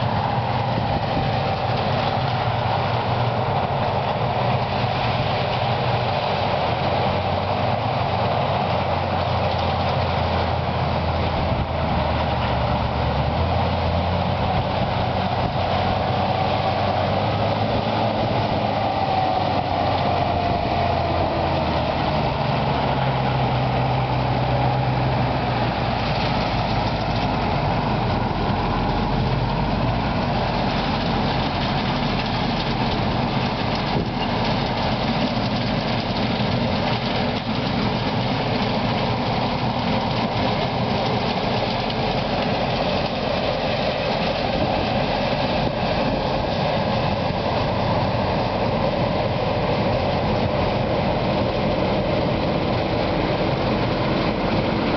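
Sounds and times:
combine harvester working: 0.0 - 54.9
tractor diesel engine running: 0.0 - 54.9.

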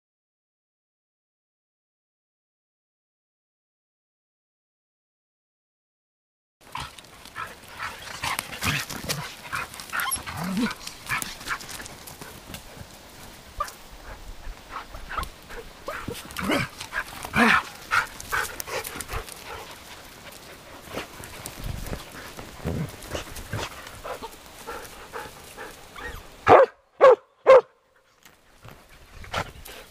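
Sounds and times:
puppies yipping and squealing: 9.5 - 11.8, 25.8 - 26.4.

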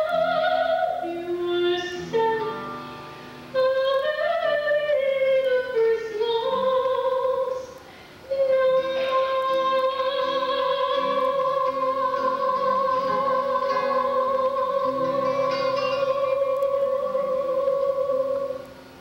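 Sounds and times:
guitar accompaniment: 0.0 - 19.0
woman singing a long high note: 3.5 - 18.7.

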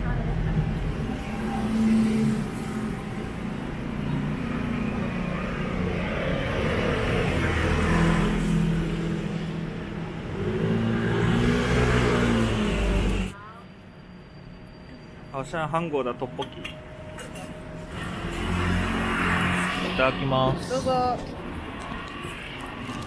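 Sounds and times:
vehicles passing on street: 0.0 - 23.0.

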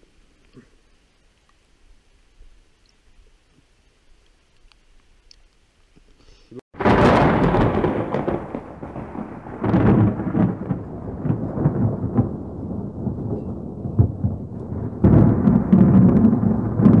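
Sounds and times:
low rumbling noise: 6.8 - 17.0.

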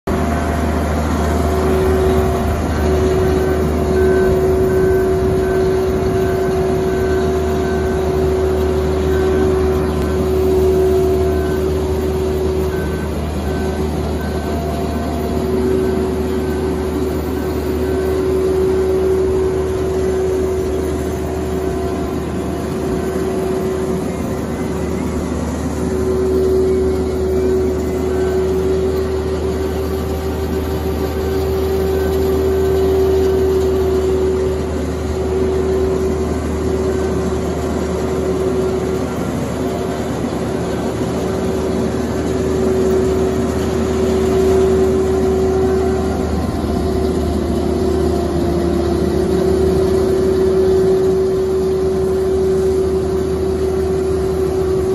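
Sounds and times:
boat hoist engine drone: 0.0 - 54.9
steady whine: 0.0 - 54.9
faint high beep: 0.1 - 40.1.

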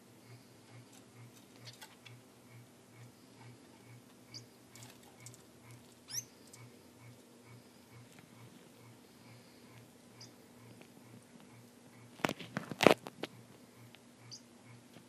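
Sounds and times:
faint pulsing low hum: 0.0 - 15.0
birds moving in cage clicks: 0.9 - 2.2, 4.7 - 6.7
finches chirping: 3.0 - 10.8, 14.2 - 14.8.

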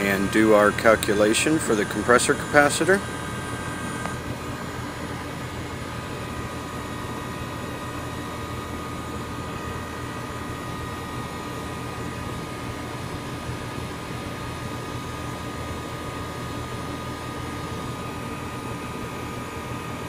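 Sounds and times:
heat pump humming: 0.0 - 20.0.

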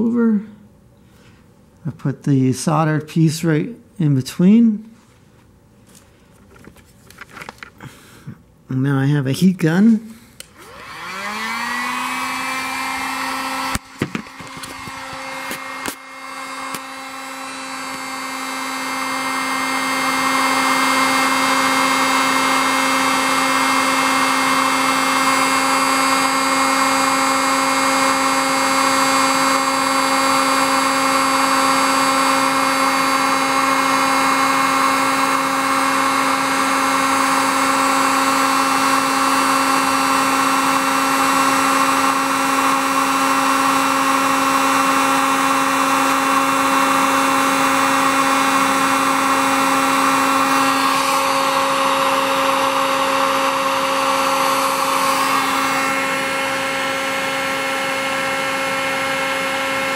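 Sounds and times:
heat gun blowing air: 9.9 - 59.9.

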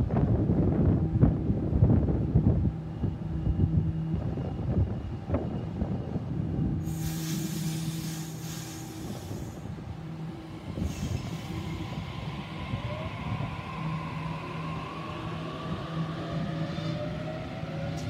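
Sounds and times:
electric train humming: 0.0 - 18.0
thin whine sliding in pitch: 5.5 - 18.0.

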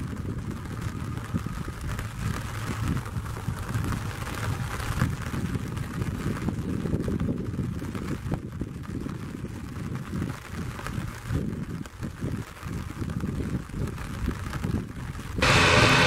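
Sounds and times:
rain and runway spray hiss: 0.0 - 16.0
turboprop engines rumbling: 15.4 - 16.0.

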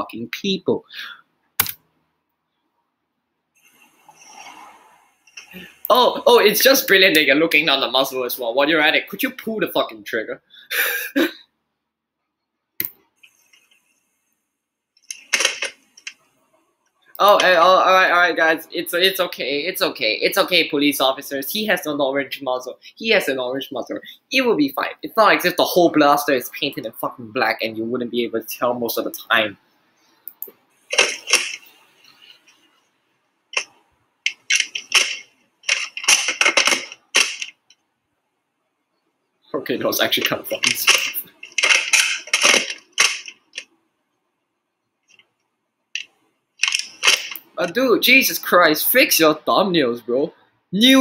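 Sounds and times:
plastic clicks and rattles: 34.3 - 37.8, 40.6 - 43.7, 46.0 - 47.4.

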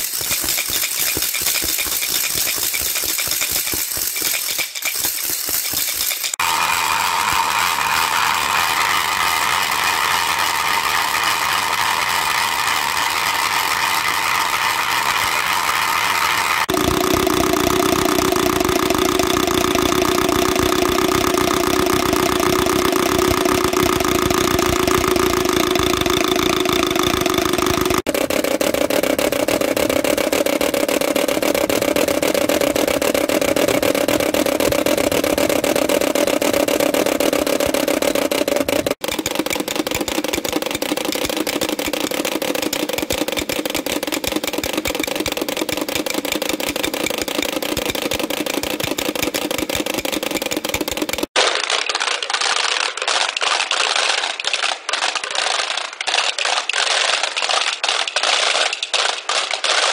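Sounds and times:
wooden rattle clattering: 0.0 - 6.4.

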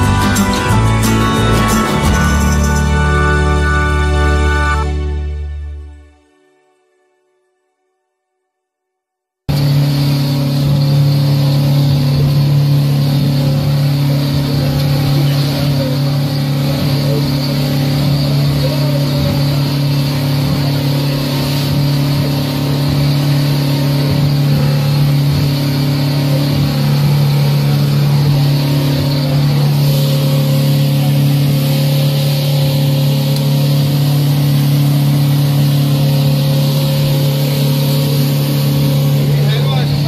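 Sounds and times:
outboard motor running: 0.0 - 6.8, 9.5 - 40.0
water rushing: 9.5 - 40.0.

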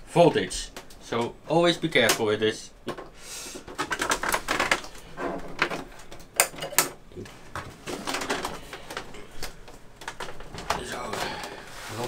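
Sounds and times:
plastic monitor casing scraping: 3.7 - 6.0, 7.7 - 9.2.

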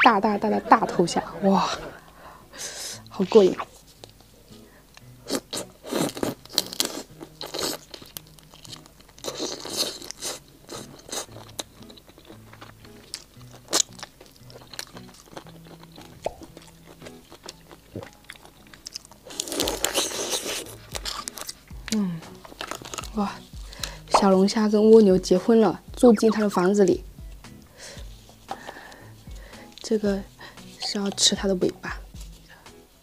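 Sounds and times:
crunchy chewing: 3.6 - 24.3, 27.3 - 33.0.

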